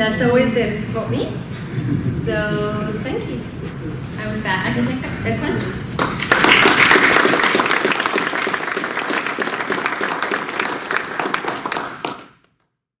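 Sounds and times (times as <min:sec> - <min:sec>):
audience applauding: 0:05.3 - 0:12.6.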